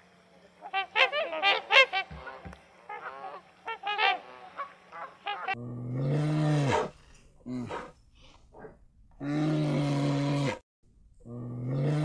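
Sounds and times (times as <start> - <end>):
honking bird calls: 0.6 - 5.6
long low animal call: 9.2 - 10.6, 11.2 - 12.0.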